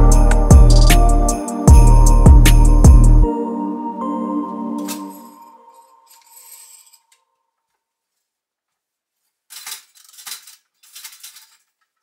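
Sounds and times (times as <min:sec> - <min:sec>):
music: 0:00.0 - 0:07.2.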